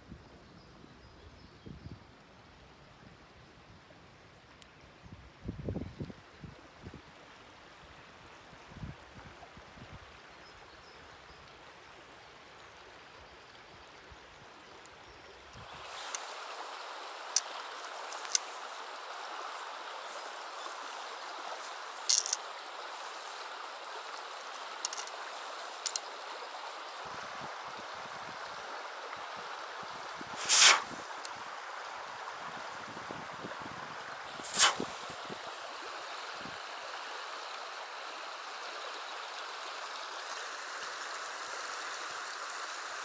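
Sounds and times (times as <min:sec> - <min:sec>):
river water rushing: 0:15.6 - 0:43.0
fishing gear clicks: 0:17.4 - 0:18.6, 0:21.6 - 0:23.3, 0:24.6 - 0:26.1, 0:30.4 - 0:31.4.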